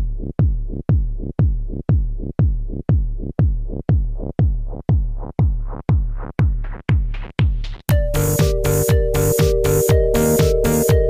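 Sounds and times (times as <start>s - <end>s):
heavy kick drum: 0.0s - 11.0s
electronic dance music: 7.9s - 11.0s.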